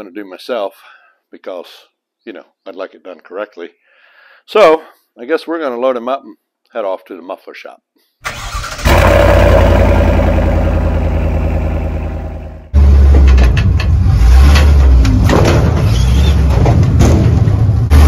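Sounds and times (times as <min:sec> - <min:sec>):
truck engine rumbling: 0:08.3 - 0:18.0.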